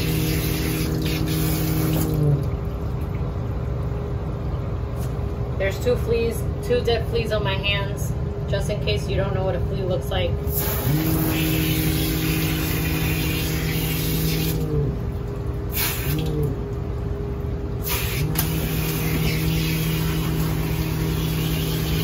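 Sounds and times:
water spraying onto wet fur: 0.0s - 2.3s, 10.5s - 14.6s, 15.7s - 16.5s, 17.8s - 22.0s
steady mechanical hum: 0.0s - 22.0s.

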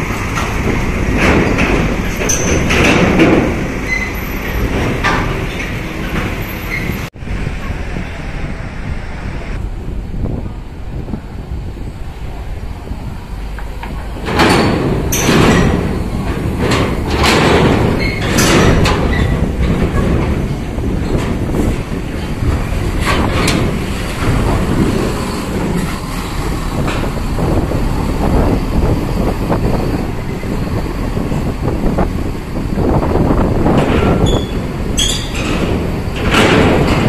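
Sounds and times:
heavy vehicle rumble: 0.0s - 37.0s
loud knocks: 0.3s - 6.5s, 14.2s - 26.1s, 33.2s - 37.0s.

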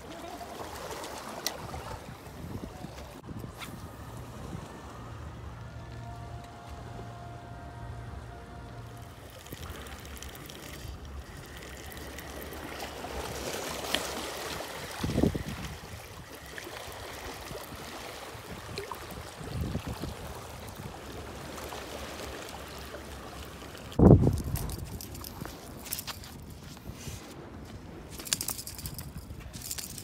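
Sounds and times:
water lapping against rocks: 0.0s - 3.2s, 9.1s - 26.2s.

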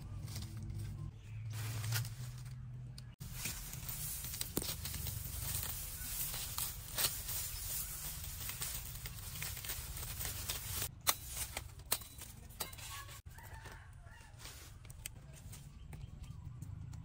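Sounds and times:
rustling leaves: 0.0s - 15.8s
stalks snapping: 2.0s - 12.5s.

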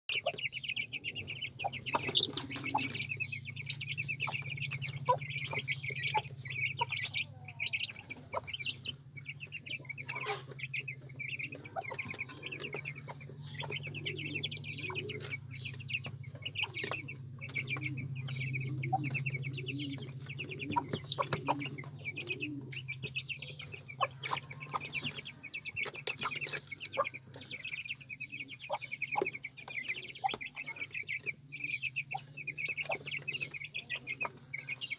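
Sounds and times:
chicks peeping: 0.1s - 34.9s
hen clucking: 0.1s - 34.9s
steady low hum: 0.1s - 34.9s.

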